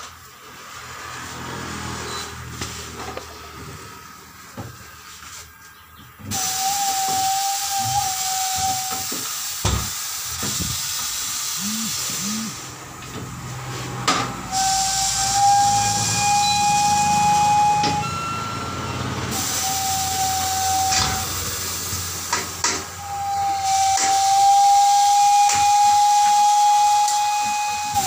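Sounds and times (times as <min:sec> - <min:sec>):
compressed air hissing: 0:06.3 - 0:18.1, 0:19.2 - 0:28.0.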